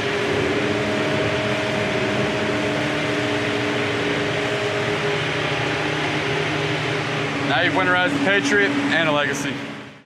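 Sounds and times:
whining tones: 0.0s - 10.0s
truck engines idling: 3.4s - 9.9s.

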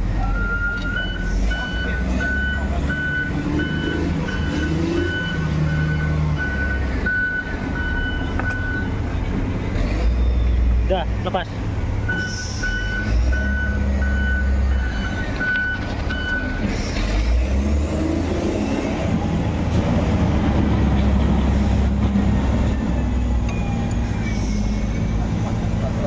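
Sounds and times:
heavy vehicle engine running: 0.0s - 26.0s
reversing beeper: 0.2s - 9.0s, 12.1s - 16.7s.

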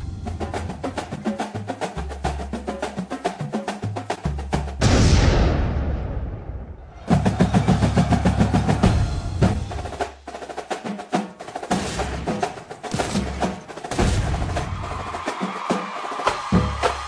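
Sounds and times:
fast dense drum pattern: 0.0s - 5.3s, 7.0s - 17.0s
background music wash: 0.0s - 5.6s.

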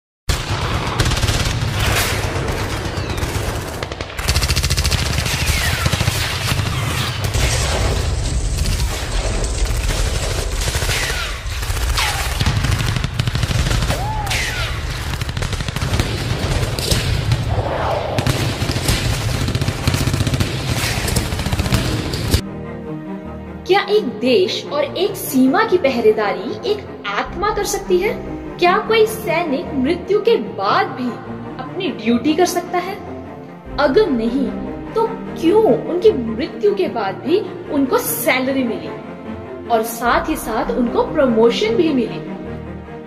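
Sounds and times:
explosions: 0.3s - 22.4s
rapid gunfire: 0.3s - 22.4s.

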